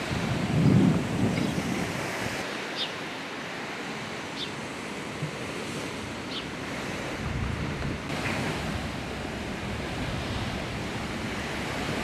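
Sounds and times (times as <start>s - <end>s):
wind on microphone: 0.0s - 2.5s, 6.6s - 12.0s
sea surf rushing: 0.0s - 12.0s.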